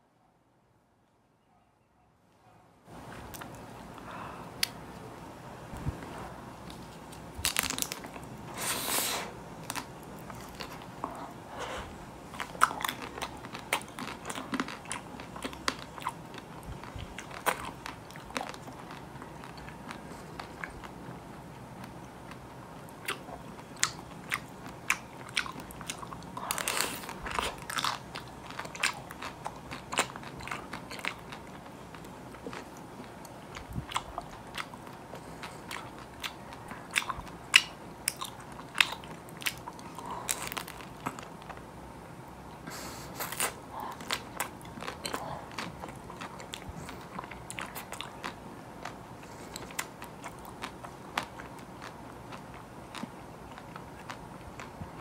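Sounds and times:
chewing: 0:09.6 - 0:21.2, 0:21.8 - 0:41.6, 0:42.7 - 0:55.0.

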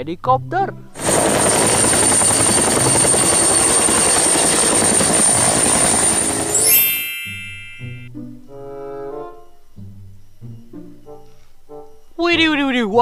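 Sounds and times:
helicopter hovering: 0:01.0 - 0:08.1
chord of held tones: 0:06.5 - 0:08.1.

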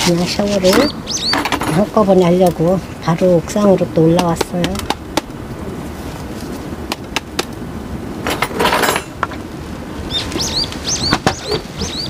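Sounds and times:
bird chirping: 0:00.2 - 0:01.9, 0:10.0 - 0:12.0.

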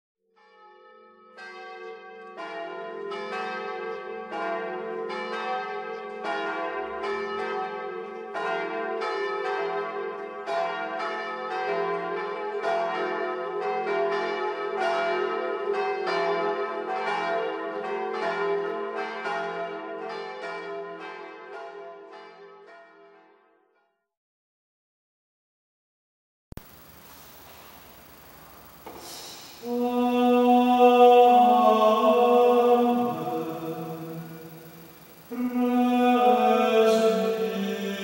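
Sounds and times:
church bells pealing: 0:00.4 - 0:23.2, 0:29.4 - 0:38.0
steady low hum: 0:26.6 - 0:38.0.

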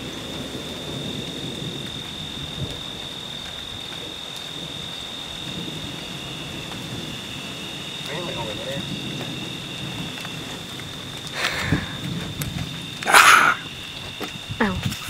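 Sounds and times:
distant thunder rumble: 0:00.0 - 0:15.0
insects droning: 0:00.0 - 0:15.0
light rain hissing: 0:00.0 - 0:15.0.

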